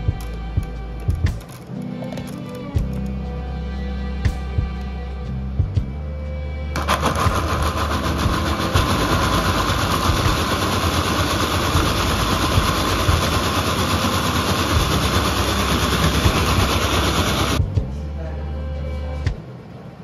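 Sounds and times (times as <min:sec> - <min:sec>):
blender motor running: 0:06.8 - 0:17.6.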